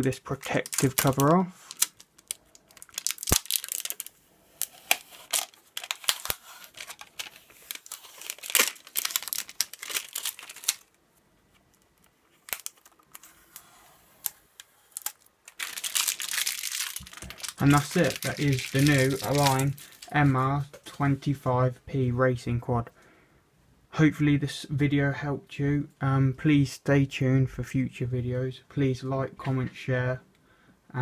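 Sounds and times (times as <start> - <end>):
plastic film crinkling and crackling: 0.0 - 21.1.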